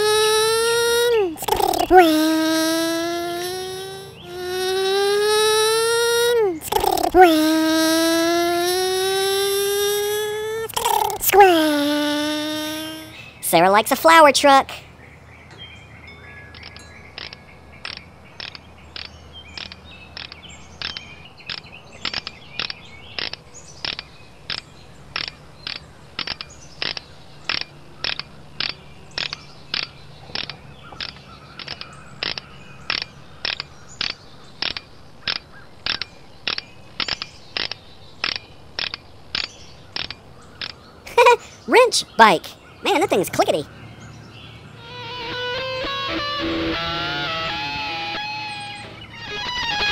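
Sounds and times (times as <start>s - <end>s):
steady even clicking: 16.6s - 40.8s.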